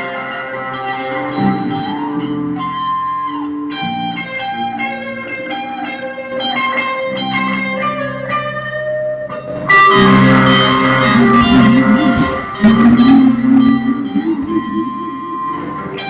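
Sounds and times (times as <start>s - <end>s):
electric guitar plucked notes: 0.0s - 16.0s
live band music: 0.0s - 16.0s
steady bass line: 9.5s - 16.0s.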